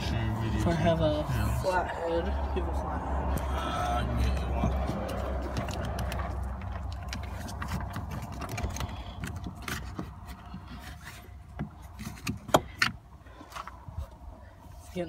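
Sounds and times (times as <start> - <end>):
plastic clicks and scrapes: 5.4 - 13.0.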